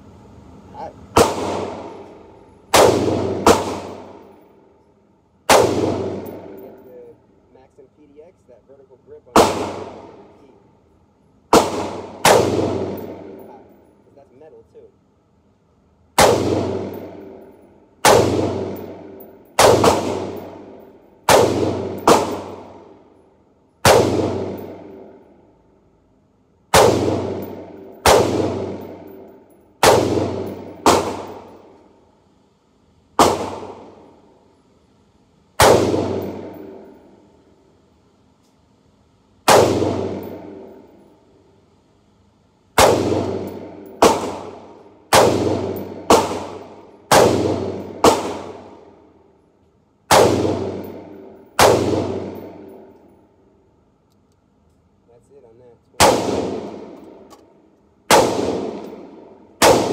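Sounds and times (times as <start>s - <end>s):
gunshots echoing indoors: 1.1s - 4.6s, 5.4s - 7.0s, 9.3s - 10.4s, 11.5s - 13.8s, 16.2s - 26.0s, 26.7s - 32.0s, 33.1s - 34.6s, 35.6s - 37.6s, 39.4s - 41.2s, 42.8s - 49.4s, 50.1s - 53.6s, 56.0s - 59.9s.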